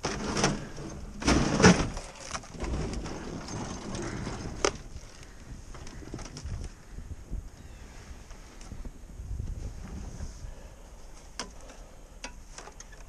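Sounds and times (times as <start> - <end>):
snowblower scraping and rustling: 0.0 - 5.4.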